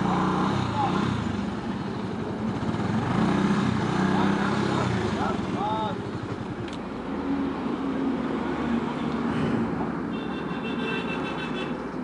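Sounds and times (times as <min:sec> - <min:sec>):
motorcycle engine running: 0:00.0 - 0:06.4
road and wind noise: 0:00.0 - 0:12.0.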